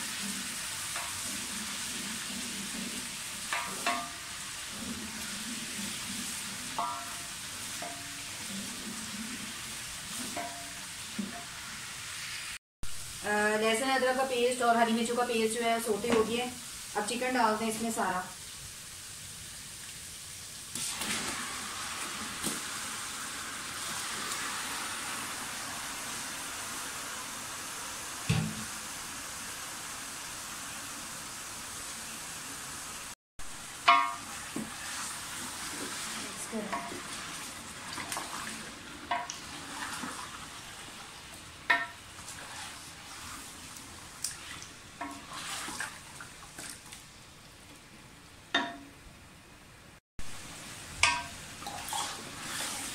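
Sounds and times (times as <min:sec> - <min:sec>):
food sizzling in hot oil: 0:00.0 - 0:46.4, 0:50.2 - 0:52.9
ladle knocking against pot: 0:33.9 - 0:34.3, 0:48.6 - 0:48.9.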